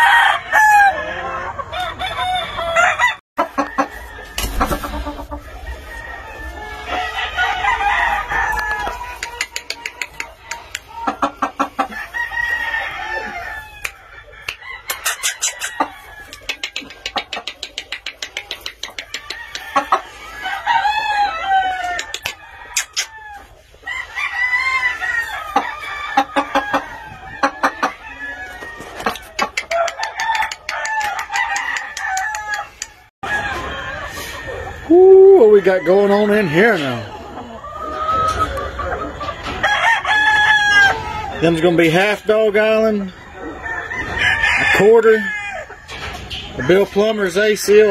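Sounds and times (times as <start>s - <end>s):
rooster crowing: 0.0s - 4.5s, 5.5s - 9.8s, 11.9s - 16.5s, 19.2s - 29.0s, 29.6s - 37.1s, 39.5s - 41.5s, 43.0s - 45.9s
chickens clucking: 0.0s - 47.9s.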